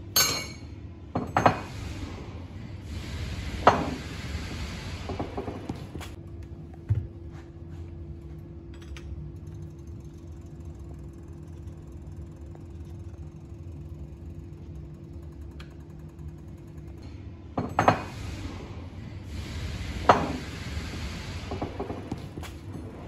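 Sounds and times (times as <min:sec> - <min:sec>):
machine hum: 0:00.0 - 0:23.0.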